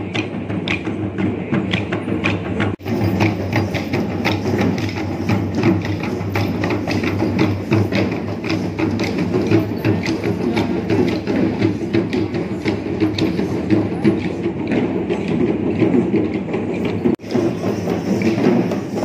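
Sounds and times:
rapid procession drumming: 0.0s - 19.0s.

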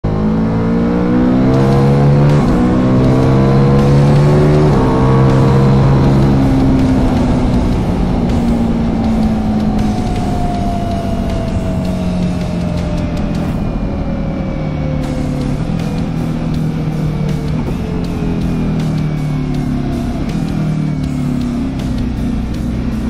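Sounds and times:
motorcycle engine accelerating: 0.0s - 23.0s
wind and road noise: 0.0s - 23.0s.

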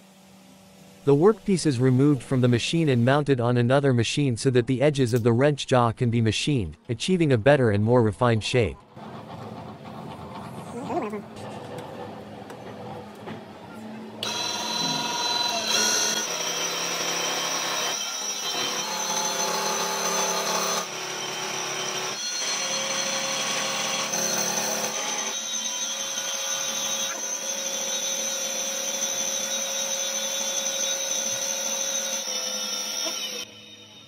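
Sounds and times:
milling machine cutting steel: 14.2s - 34.0s.

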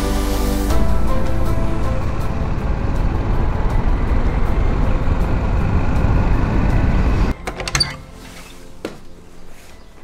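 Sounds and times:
motorcycle engine and wind rumble: 1.0s - 8.0s.

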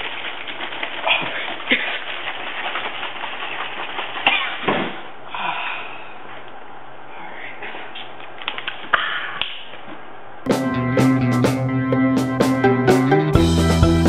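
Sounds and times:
liquid sloshing in plastic bottle: 0.0s - 4.7s.

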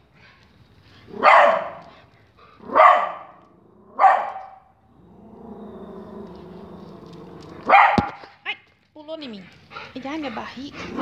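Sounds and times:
dog barking: 1.2s - 1.8s, 2.6s - 3.4s, 4.0s - 4.7s, 7.7s - 8.4s.

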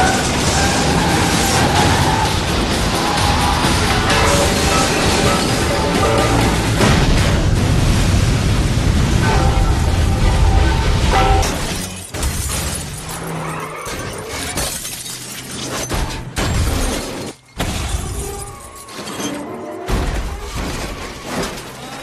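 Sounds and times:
heavy crash impacts: 0.0s - 13.0s
glass shattering: 3.8s - 7.4s, 9.2s - 22.0s.

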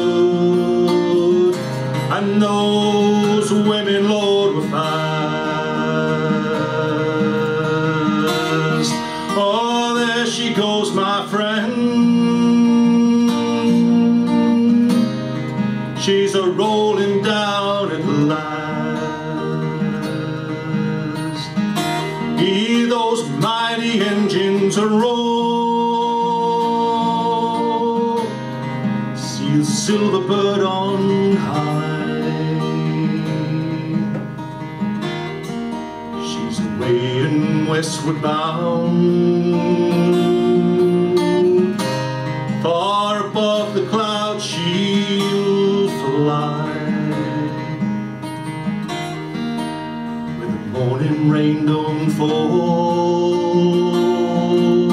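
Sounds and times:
man singing: 0.0s - 34.4s, 36.1s - 48.0s, 50.4s - 54.9s
acoustic guitar playing: 0.0s - 54.9s.

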